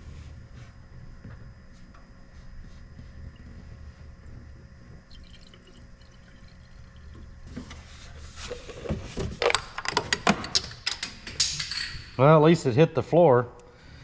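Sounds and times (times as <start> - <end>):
low steady hum: 0.0 - 14.0
liquid pouring and splashing: 5.0 - 7.9.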